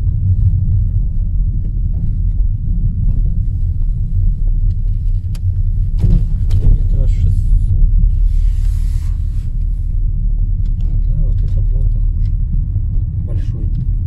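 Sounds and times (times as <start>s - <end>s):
car engine and tyres rumbling: 0.0s - 14.0s
sharp clicks and knocks: 4.6s - 7.1s.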